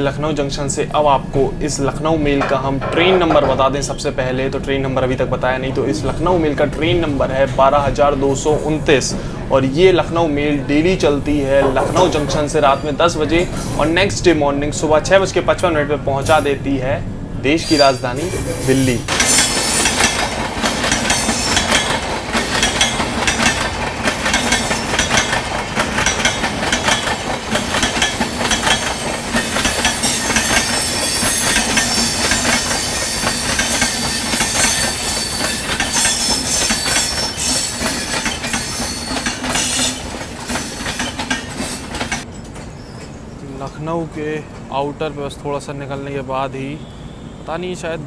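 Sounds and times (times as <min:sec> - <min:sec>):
train wheels clattering over rails: 0:19.1 - 0:43.3.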